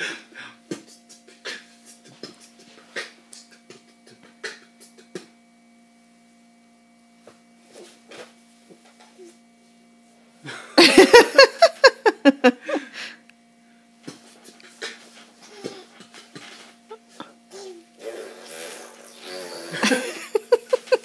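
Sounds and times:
man beatboxing: 0.7s - 5.4s.

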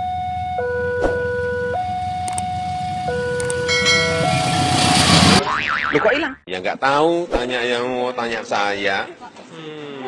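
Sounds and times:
level crossing two-tone alarm: 0.0s - 5.4s
train rumble: 1.2s - 5.4s.

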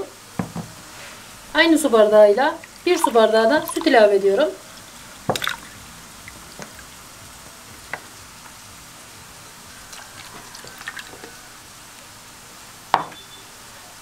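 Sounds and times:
faint steady hiss: 0.0s - 14.0s
milk pouring: 2.5s - 7.0s, 9.9s - 11.4s
soft liquid splashing: 2.5s - 7.0s, 9.9s - 11.3s.

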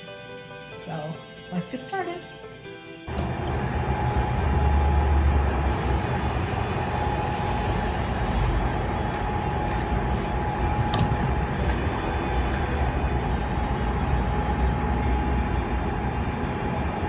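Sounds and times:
aerosol can spraying: 5.6s - 8.6s.

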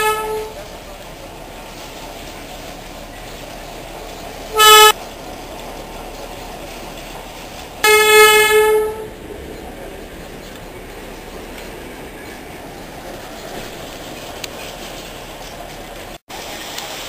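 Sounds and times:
train horn blasts: 0.0s - 0.6s, 4.5s - 5.0s, 7.8s - 9.1s
running train noise: 0.0s - 17.0s.

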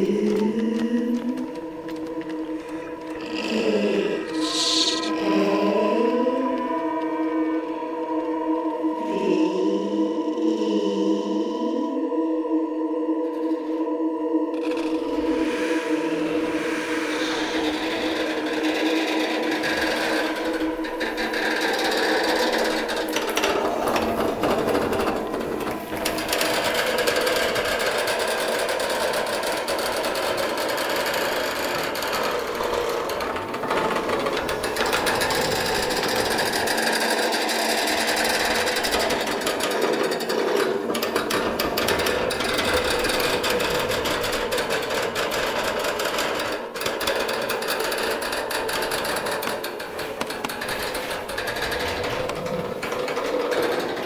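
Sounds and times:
held drone tones: 0.0s - 54.0s
fast clattering rattle: 17.2s - 54.0s.

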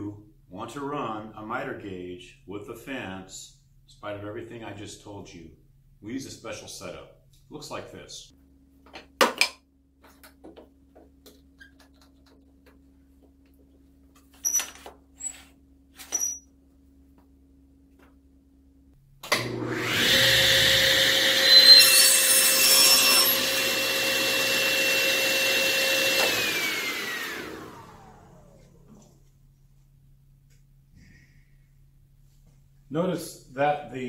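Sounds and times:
saw cutting board: 19.4s - 28.1s
saw blade winding down: 19.4s - 28.6s
table saw whine: 19.4s - 28.9s.

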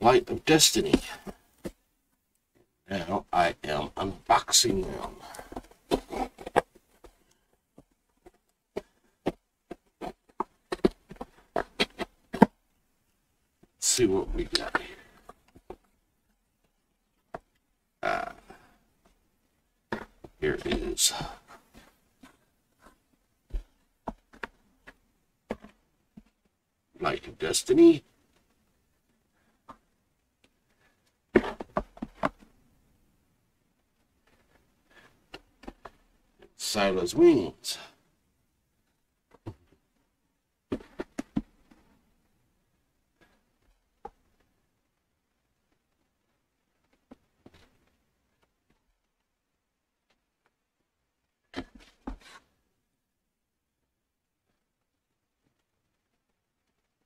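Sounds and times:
books and cardboard box handled: 5.0s - 12.6s, 51.4s - 52.5s.

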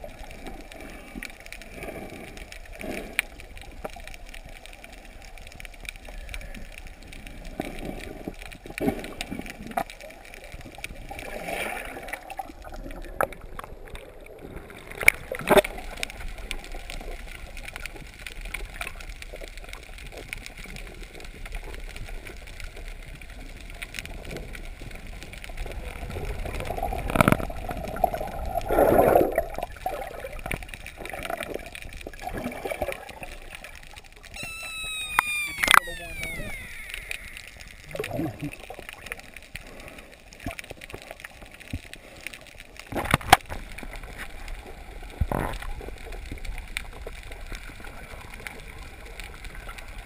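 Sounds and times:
bubbly gurgle: 0.0s - 50.0s
underwater water noise: 0.0s - 50.0s
sharp clicks: 34.2s - 38.2s.

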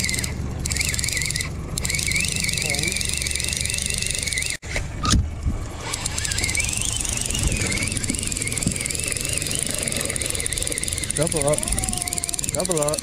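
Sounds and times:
outboard motor humming: 0.0s - 4.6s, 5.2s - 13.0s
high wavering whine: 5.7s - 13.0s.

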